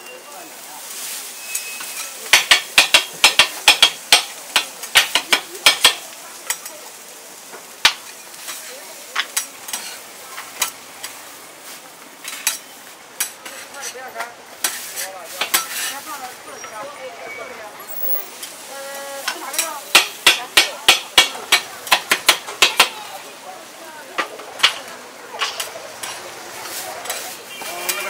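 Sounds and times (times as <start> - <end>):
faint sizzle: 0.0 - 28.0
spatula scraping griddle: 1.0 - 6.7, 7.6 - 16.9, 25.4 - 28.0
spatula chopping on griddle: 2.3 - 6.6, 7.7 - 8.6, 9.2 - 11.2, 12.2 - 14.0, 14.6 - 16.0, 19.3 - 23.0, 24.2 - 28.0.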